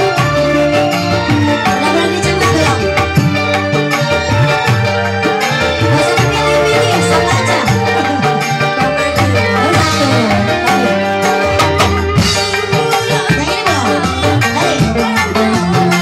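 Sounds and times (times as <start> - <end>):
electric guitar: 0.0 - 16.0
hand-drum beat: 0.0 - 16.0
keyboard: 0.0 - 16.0.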